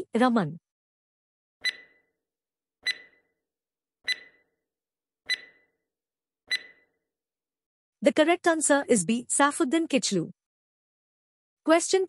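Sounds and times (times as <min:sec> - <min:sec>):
timer ticks with ringing tone: 0:01.6 - 0:02.2, 0:02.8 - 0:03.4, 0:04.0 - 0:04.6, 0:05.3 - 0:05.8, 0:06.5 - 0:07.0.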